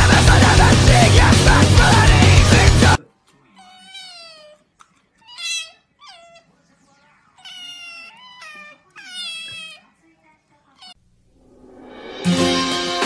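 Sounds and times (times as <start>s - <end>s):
cat meowing: 3.6s - 4.6s, 5.2s - 6.5s, 7.4s - 9.9s, 10.8s - 11.0s.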